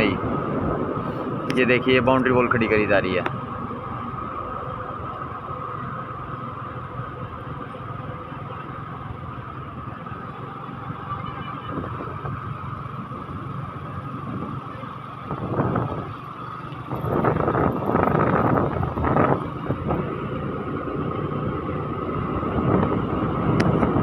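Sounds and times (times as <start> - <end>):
wind rushing on microphone: 0.0 - 3.1, 10.8 - 24.0
constant high whine: 0.0 - 24.0
vehicle driving along road: 0.0 - 24.0.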